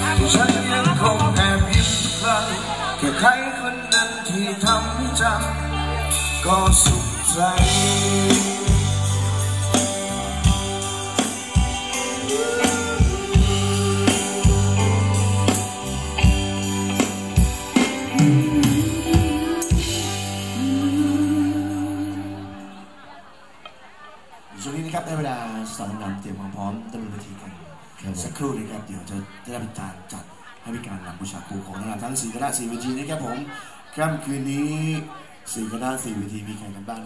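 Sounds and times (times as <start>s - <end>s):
live band playing dance music: 0.0s - 22.7s.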